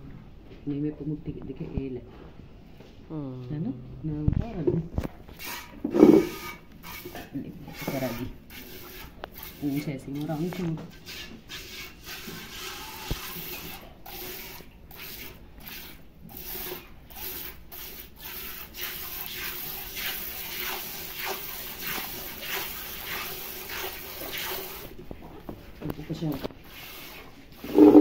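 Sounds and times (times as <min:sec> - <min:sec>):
milk squirting into bucket: 0:11.8 - 0:25.0.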